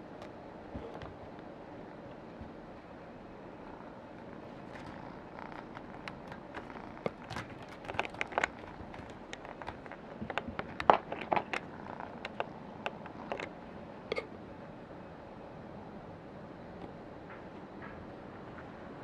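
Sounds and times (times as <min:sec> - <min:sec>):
kitten claws scratching post: 0:04.3 - 0:13.6.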